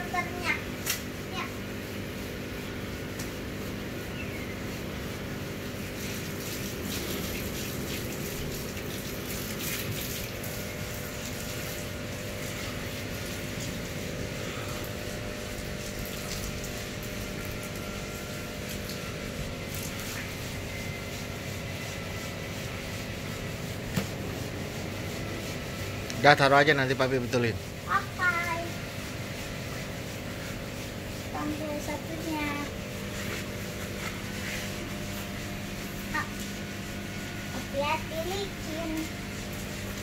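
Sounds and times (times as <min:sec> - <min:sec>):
low pump hum: 0:00.0 - 0:40.0
running and splashing water: 0:06.0 - 0:14.0, 0:14.8 - 0:20.6.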